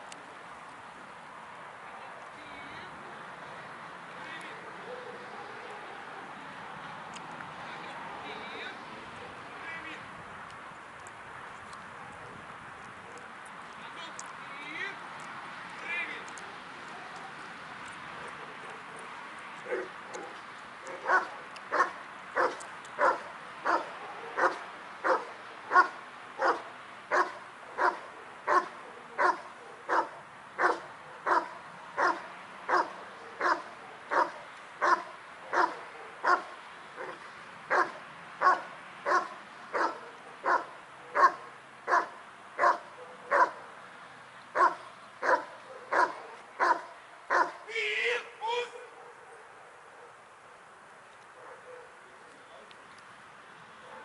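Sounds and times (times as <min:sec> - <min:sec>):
dog barking: 0:04.6 - 0:06.2, 0:18.2 - 0:43.7, 0:44.6 - 0:47.6, 0:48.8 - 0:50.2, 0:51.3 - 0:52.0.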